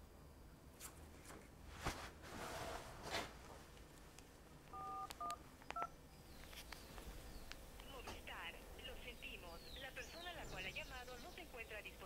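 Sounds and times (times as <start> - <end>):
rustling: 0.8 - 4.4
phone keypad beeps: 4.8 - 5.9.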